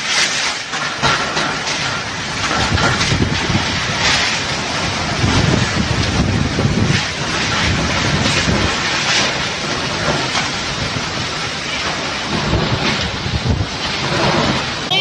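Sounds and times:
wind-driven rain: 0.0 - 15.0
wind buffeting microphone: 1.1 - 14.9
strong wind rushing: 2.0 - 14.9.

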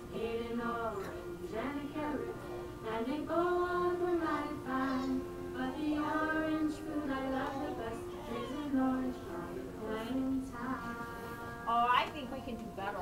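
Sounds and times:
woman singing along: 0.0 - 13.0
children singing together: 0.1 - 11.7.

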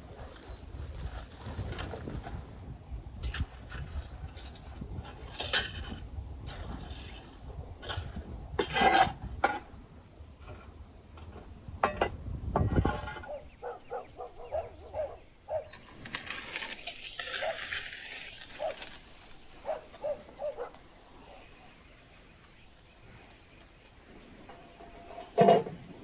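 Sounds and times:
rake scraping through embers: 3.1 - 9.8, 15.5 - 22.4
hissing rustle: 15.6 - 24.4.

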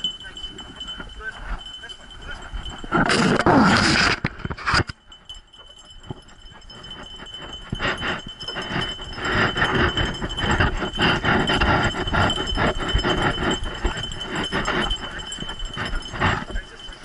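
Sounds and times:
harness clips clinking and rattling: 0.0 - 17.0.

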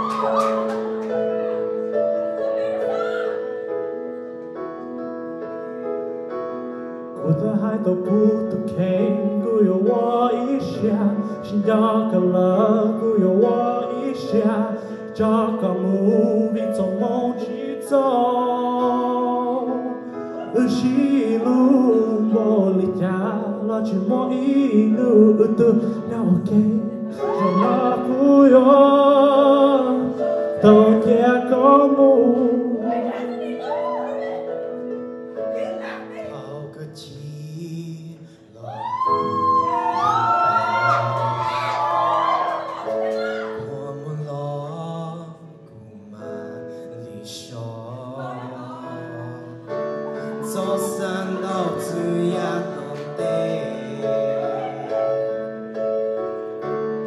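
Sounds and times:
man singing into microphone: 7.2 - 33.5, 36.1 - 42.5, 43.4 - 55.5.

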